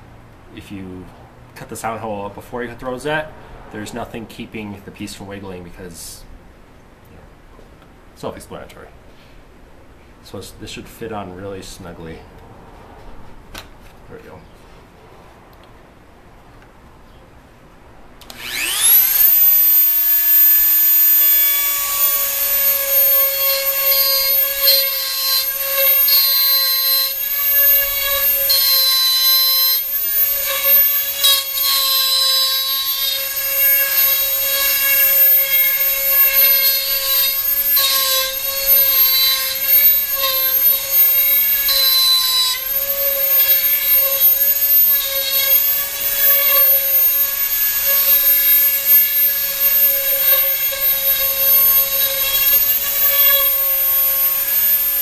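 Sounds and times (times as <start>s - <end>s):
rotary tool whining: 18.2s - 55.0s.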